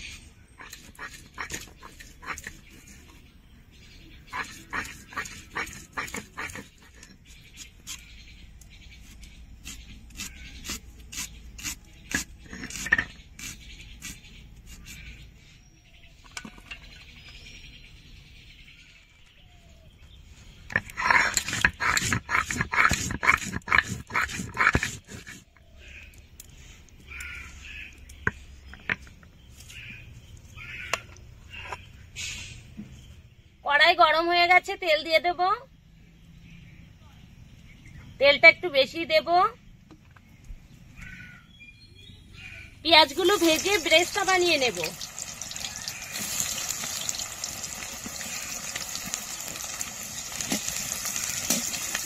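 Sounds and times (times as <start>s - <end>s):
birds calling: 0.0s - 33.6s, 39.8s - 52.0s
knife taps and scrapes: 11.6s - 13.5s
loud rough strokes: 20.8s - 25.5s.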